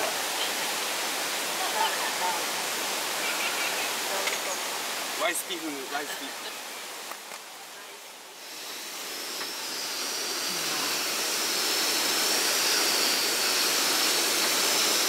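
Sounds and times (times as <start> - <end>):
camp stove burner hissing: 8.2 - 15.0.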